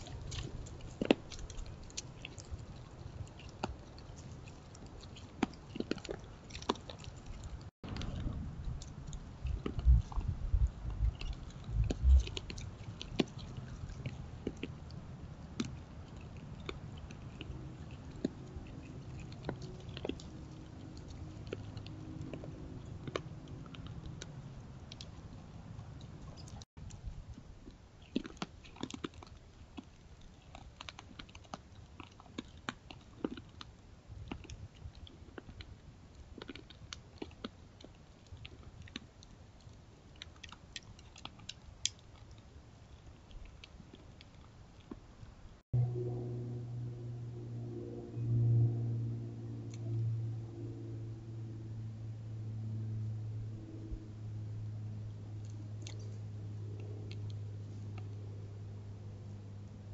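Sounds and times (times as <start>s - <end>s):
deer chewing: 0.0s - 26.6s.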